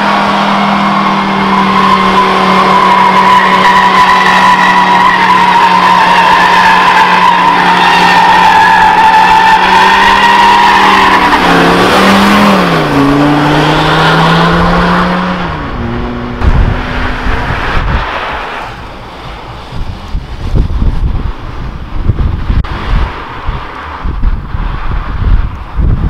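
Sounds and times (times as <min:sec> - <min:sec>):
car engine revving: 0:00.0 - 0:25.6
tyres squealing: 0:00.2 - 0:13.2
wind buffeting microphone: 0:11.7 - 0:26.0.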